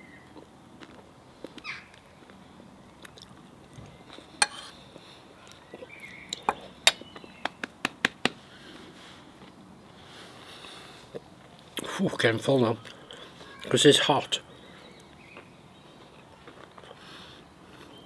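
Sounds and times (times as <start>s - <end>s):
fork clinking on ceramic plate: 4.4s - 4.7s.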